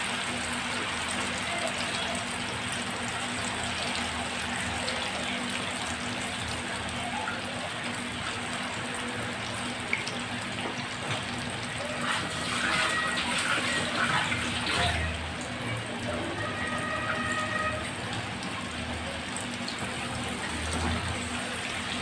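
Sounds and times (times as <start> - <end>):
oil sizzling while deep-frying: 0.0 - 22.0.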